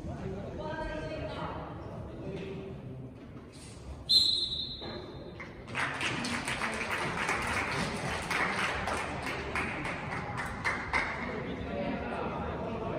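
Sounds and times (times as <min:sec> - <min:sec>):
referee's whistle blast: 0:04.1 - 0:05.0
crowd clapping: 0:05.6 - 0:11.4.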